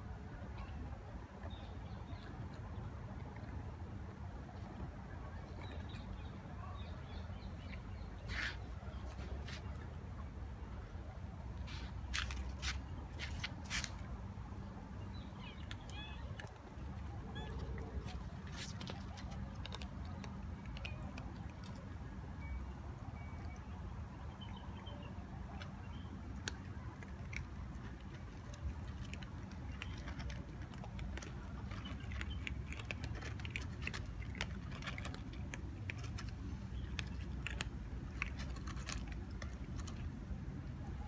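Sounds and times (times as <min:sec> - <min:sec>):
cats crunching dry kibble: 0:11.6 - 0:22.4, 0:25.3 - 0:40.9.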